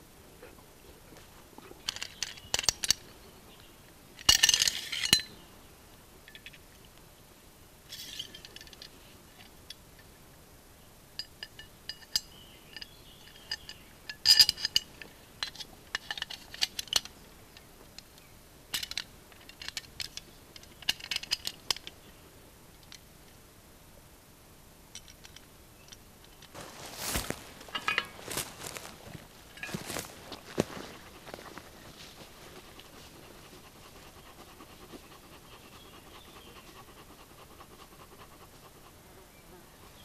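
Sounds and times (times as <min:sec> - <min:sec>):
hand tools clinking: 0:01.8 - 0:03.1, 0:04.2 - 0:05.4, 0:11.2 - 0:17.1, 0:25.0 - 0:31.2.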